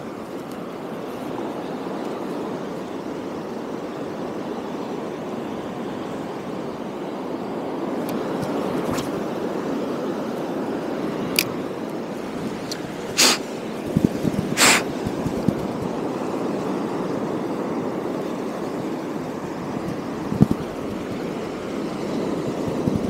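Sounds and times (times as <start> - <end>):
sea surf rushing: 0.0 - 23.0
wind on microphone: 11.1 - 23.0
short hissing bursts: 13.1 - 13.7, 14.3 - 15.6.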